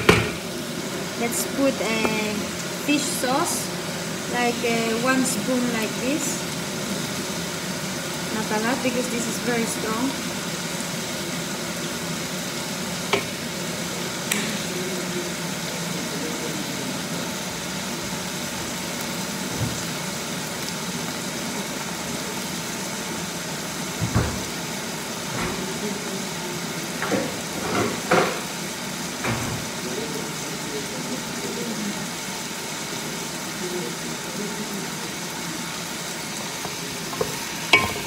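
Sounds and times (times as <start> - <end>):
fridge opening knocks: 0.0 - 0.4, 24.0 - 24.5
food sizzling in a pan: 0.0 - 38.0.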